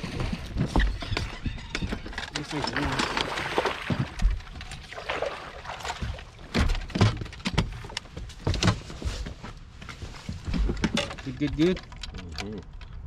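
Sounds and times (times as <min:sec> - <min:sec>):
thuds and knocks on boat deck: 0:05.8 - 0:09.0.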